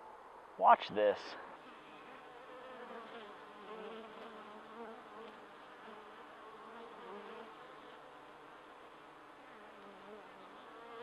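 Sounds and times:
honey bees buzzing: 1.0 - 11.0.

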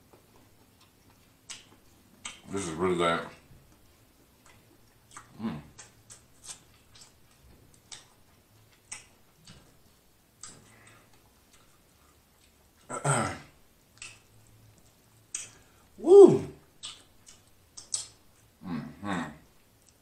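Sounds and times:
wet lip smacks and chewing: 0.1 - 2.6, 3.3 - 12.9, 13.8 - 15.9, 16.6 - 18.6, 19.6 - 20.0
short voiced sound: 16.0 - 16.6.

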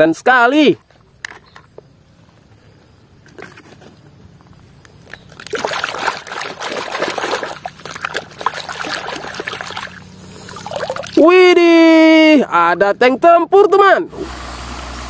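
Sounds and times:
water sloshing and splashing: 4.9 - 11.2.

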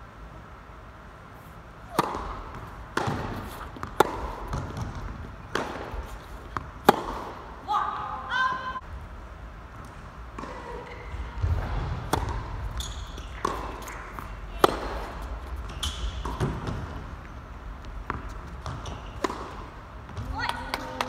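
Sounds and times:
shoes squeaking on court: 1.3 - 7.3, 9.8 - 20.5
racquet striking ball: 1.8 - 7.7, 9.8 - 21.0
tennis ball bouncing: 1.8 - 8.6, 9.8 - 21.0.

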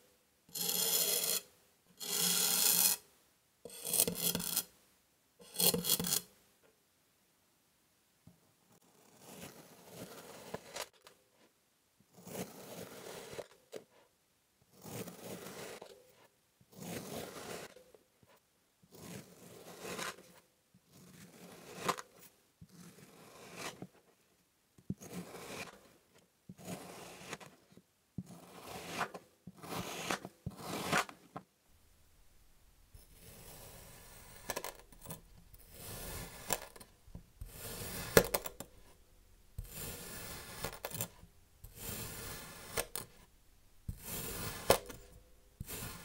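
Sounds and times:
knife slicing through sand: 33.2 - 36.8, 37.5 - 38.9, 39.6 - 43.0, 43.9 - 46.0.

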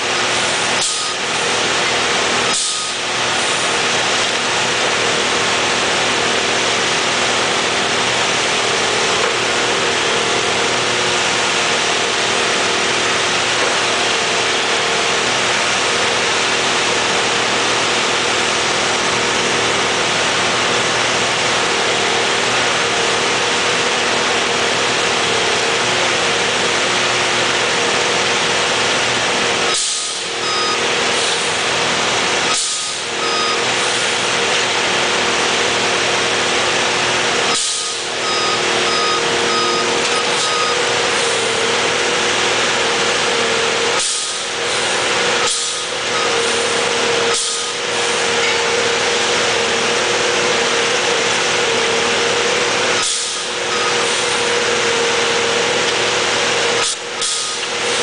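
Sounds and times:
hydraulic machine whining: 0.0 - 58.0
short warning beeps: 30.4 - 30.8, 32.5 - 33.7, 37.8 - 40.9, 46.1 - 46.5, 53.7 - 54.1.

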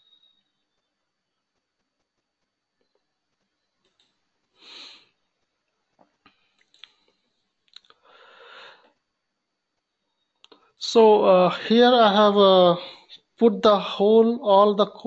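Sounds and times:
faint clicks: 0.0 - 10.8
faint breathing: 4.4 - 5.4, 6.2 - 9.0.

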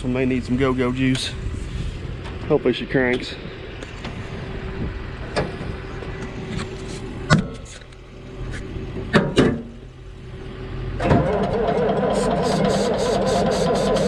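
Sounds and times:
engine idling: 0.0 - 14.0
diesel engine cranking: 3.1 - 14.0.

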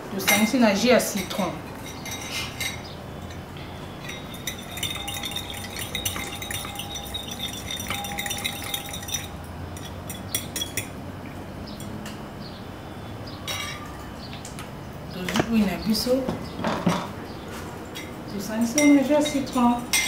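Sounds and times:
utensils and dishes clinking: 0.2 - 11.0, 13.4 - 14.1, 17.8 - 20.0.

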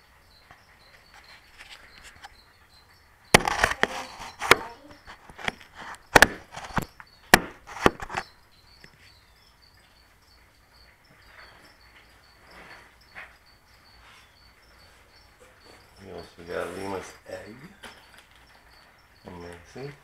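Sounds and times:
cricket chirping faintly: 0.0 - 20.0
sharp knocks and clicks: 3.3 - 9.0.

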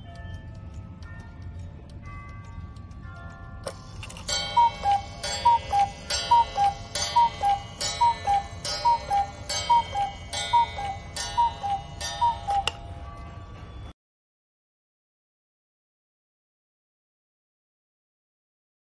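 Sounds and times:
clock mechanism click: 2.0 - 12.8
two-note cuckoo call: 4.1 - 12.8.

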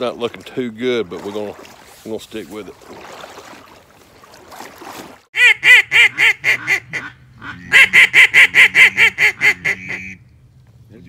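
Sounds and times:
duck call quacks: 5.4 - 10.2.

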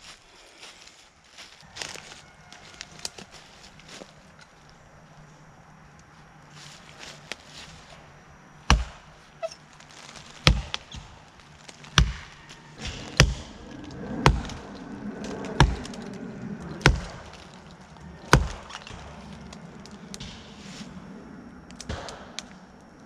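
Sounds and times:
axe chopping tree trunk: 8.6 - 9.1, 10.4 - 11.2, 11.8 - 13.6, 16.8 - 17.3, 18.3 - 19.0.

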